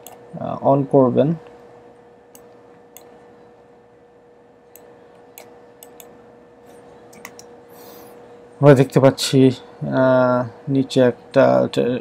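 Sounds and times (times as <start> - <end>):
computer mouse clicks: 0.0 - 0.2, 2.3 - 3.2, 4.7 - 6.2, 7.1 - 7.5
faint steady hum: 0.0 - 12.0.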